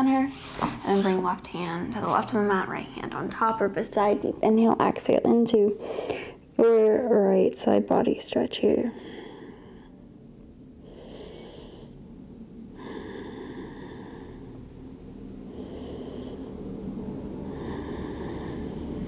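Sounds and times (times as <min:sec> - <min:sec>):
low background rumble: 0:00.0 - 0:19.0
deep human breathing: 0:05.8 - 0:06.5, 0:08.9 - 0:19.0.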